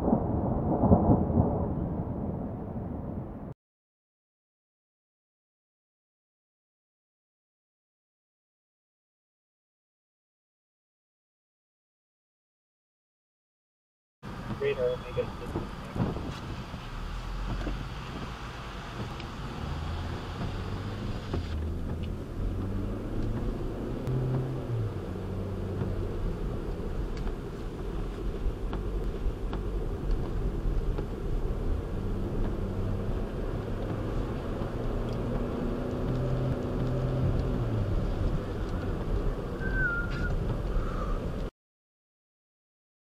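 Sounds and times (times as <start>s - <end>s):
car engine and road rumble: 14.2s - 41.5s
rain ticking on windshield: 14.3s - 41.5s.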